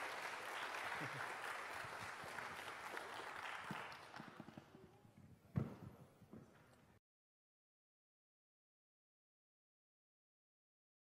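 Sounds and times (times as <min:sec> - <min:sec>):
audience applauding: 0:00.0 - 0:04.6.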